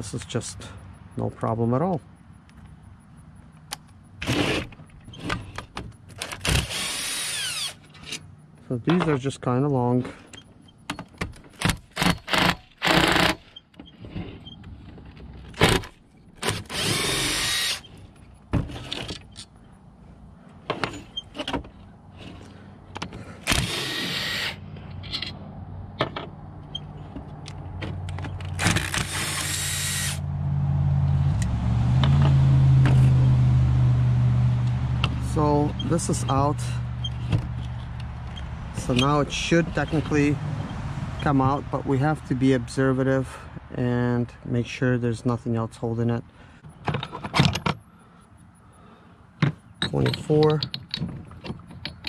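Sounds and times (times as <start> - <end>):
cordless impact driver running: 6.5 - 7.8, 12.2 - 13.4, 16.5 - 17.8, 23.5 - 24.6, 28.6 - 30.2
low steady rumble: 29.2 - 44.6
metal parts clinking: 49.8 - 52.0.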